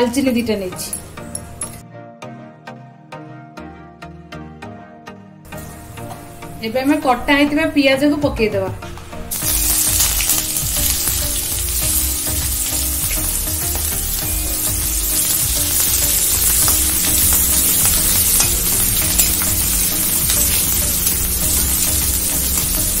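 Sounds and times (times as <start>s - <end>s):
onions sizzling in hot oil: 9.3s - 23.0s.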